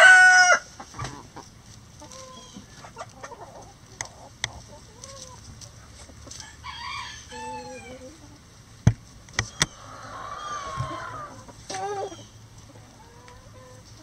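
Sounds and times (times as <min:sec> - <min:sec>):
rooster crowing: 0:00.0 - 0:00.7, 0:06.4 - 0:08.0
chickens scratching in dry litter: 0:00.0 - 0:08.4
chickens clucking softly: 0:00.0 - 0:08.7, 0:09.4 - 0:14.0.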